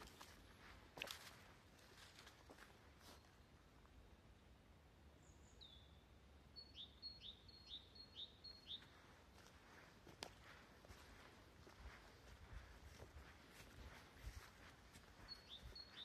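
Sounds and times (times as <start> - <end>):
footsteps on forest floor: 0.0 - 3.3, 8.7 - 16.0
songbird singing: 0.0 - 4.4, 5.0 - 16.0.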